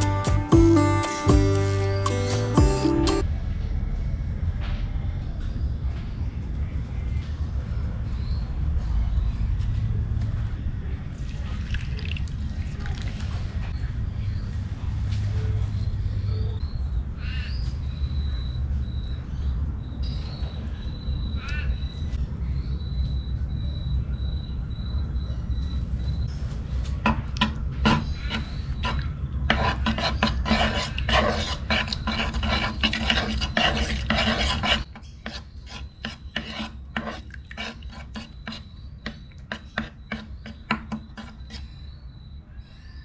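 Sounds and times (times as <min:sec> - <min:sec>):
metal spoon scraping wooden bowl: 0:27.1 - 0:41.8.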